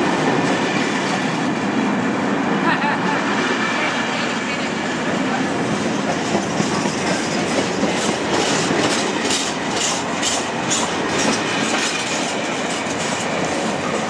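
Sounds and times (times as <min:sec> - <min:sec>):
wheels clacking over rail joints: 0:05.1 - 0:14.0.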